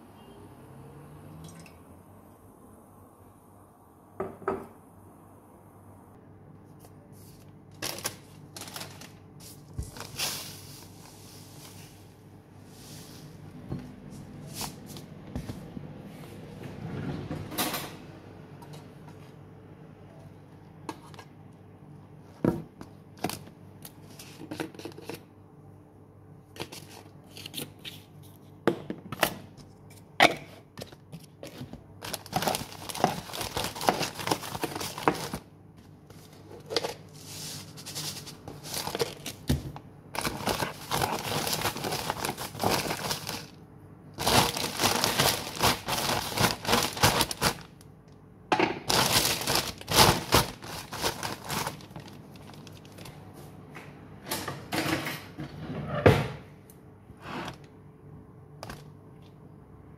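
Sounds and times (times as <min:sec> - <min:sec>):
plastic bag crinkling: 0:07.7 - 0:10.9, 0:32.0 - 0:35.4, 0:37.8 - 0:43.6, 0:44.2 - 0:47.8, 0:48.9 - 0:53.2.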